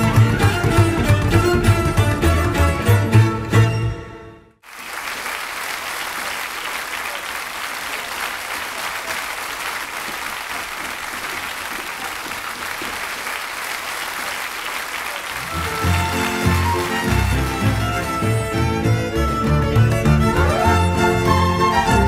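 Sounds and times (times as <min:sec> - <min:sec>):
audience applauding: 0:04.6 - 0:22.0
string ensemble chord: 0:15.4 - 0:19.6.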